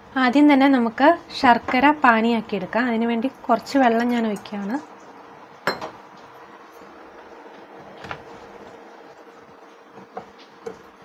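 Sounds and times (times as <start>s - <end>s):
steel kitchenware clanking: 5.6s - 6.0s.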